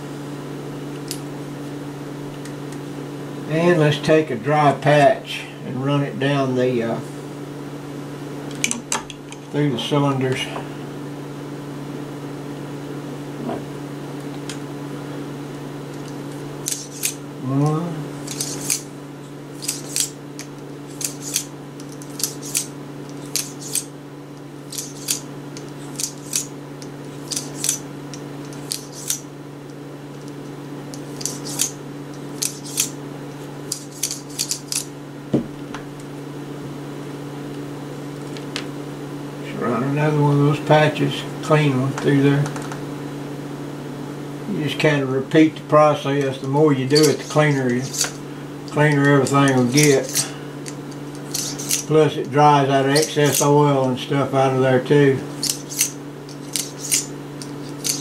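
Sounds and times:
low steady hum: 0.0s - 58.0s
cleaning rod scraping: 18.2s - 18.9s, 20.9s - 23.9s, 24.7s - 26.5s, 28.5s - 29.2s, 31.0s - 33.0s, 46.8s - 52.0s, 55.4s - 58.0s.

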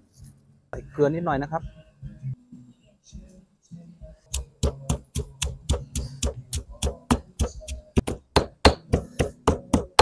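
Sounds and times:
stone pestle pounding in mortar: 4.3s - 10.0s.

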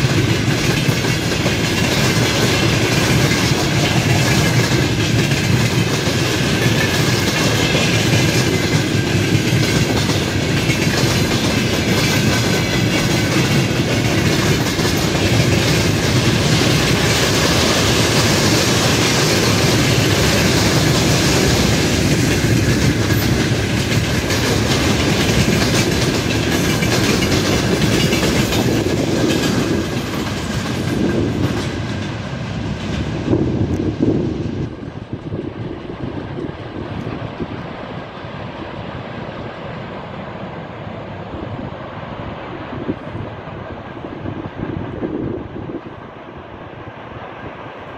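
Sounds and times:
train wheels clattering over joints: 0.0s - 37.8s.

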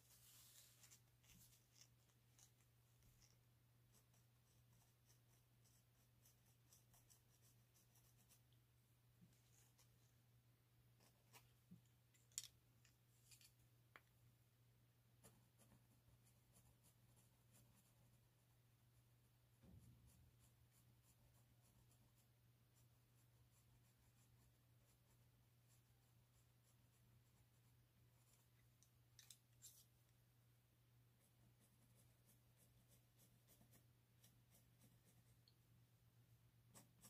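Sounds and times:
pencil scratching on paper: 0.0s - 8.5s, 9.2s - 10.0s, 11.0s - 11.5s, 15.2s - 18.5s, 19.6s - 28.6s, 31.1s - 35.5s, 36.6s - 37.0s.

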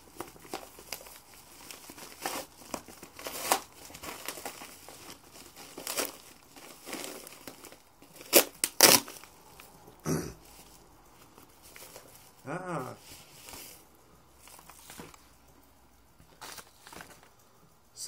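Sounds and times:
paper envelope rustling and ripping: 0.1s - 9.3s
loud sharp paper tears: 8.2s - 9.2s.

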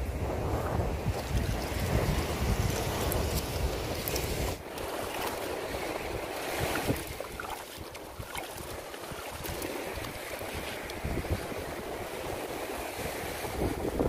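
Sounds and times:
surf: 0.0s - 14.0s
wind buffeting microphone: 0.0s - 14.0s
water sloshing in metal bowl: 6.4s - 11.0s.

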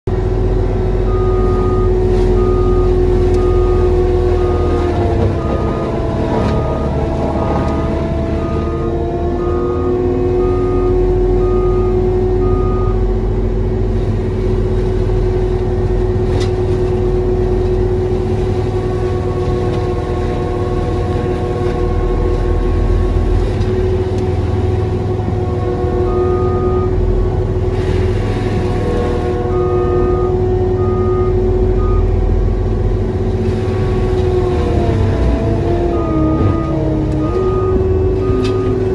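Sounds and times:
diesel engine running hard: 0.1s - 38.9s
mulcher head whine: 0.1s - 38.9s
backup alarm beeping: 1.1s - 13.1s, 25.4s - 27.0s, 29.4s - 32.2s, 35.8s - 38.9s.

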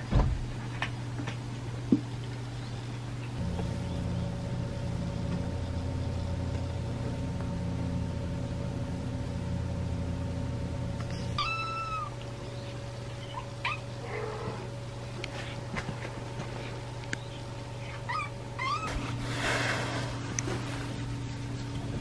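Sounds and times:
steady low rumble: 3.4s - 14.0s
cat meowing: 11.2s - 12.2s.

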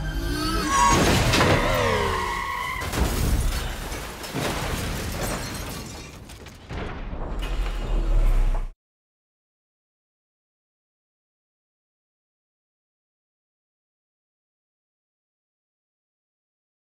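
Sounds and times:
falling screech: 0.0s - 3.1s
explosion: 0.7s - 8.8s.

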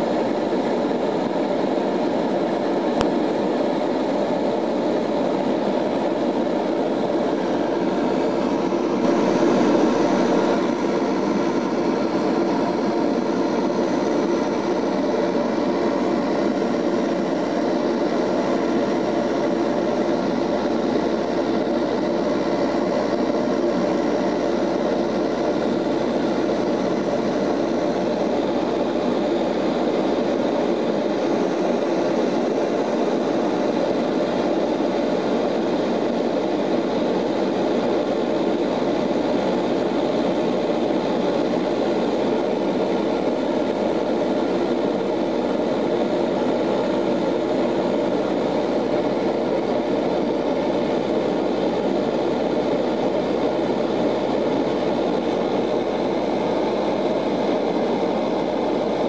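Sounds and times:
airflow noise: 0.0s - 36.2s
propeller plane cabin drone: 0.0s - 59.0s.

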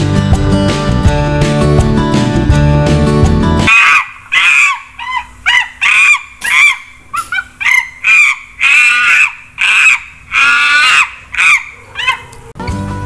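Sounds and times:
guitar music: 0.0s - 3.7s
monkey high-pitched calls: 3.7s - 12.6s.

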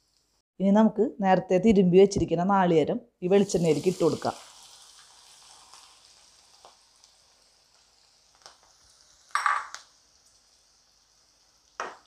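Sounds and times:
coconut sizzling in oil: 3.2s - 12.0s.

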